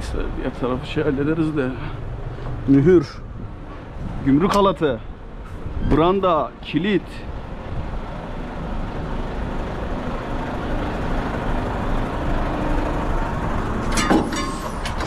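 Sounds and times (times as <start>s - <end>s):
truck engine idling: 0.0s - 15.0s
metal clanks: 13.8s - 15.0s.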